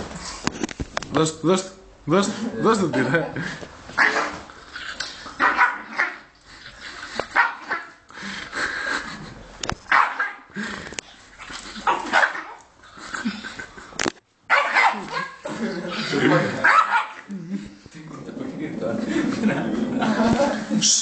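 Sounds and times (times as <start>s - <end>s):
dog barking angrily: 4.0s - 4.5s, 5.4s - 6.3s, 7.3s - 8.0s, 9.9s - 10.5s, 11.8s - 12.6s, 14.5s - 15.5s, 16.3s - 17.3s.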